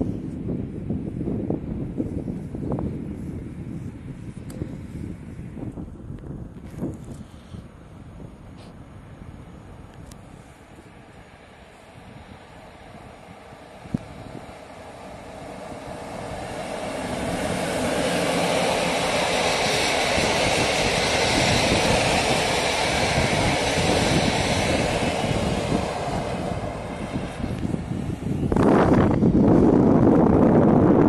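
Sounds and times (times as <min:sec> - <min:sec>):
train wheels rumbling on rails: 0:09.9 - 0:31.0.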